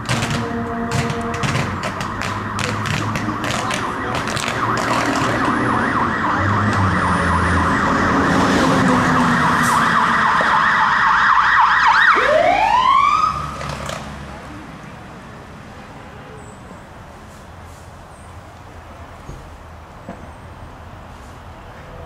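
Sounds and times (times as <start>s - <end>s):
fire engine siren wailing: 0.0s - 13.8s.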